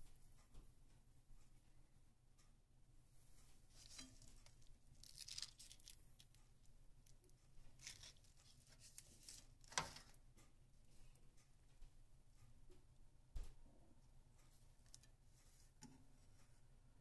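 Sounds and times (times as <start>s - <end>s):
tongs scraping in a pan: 3.7s - 6.0s, 7.8s - 10.2s.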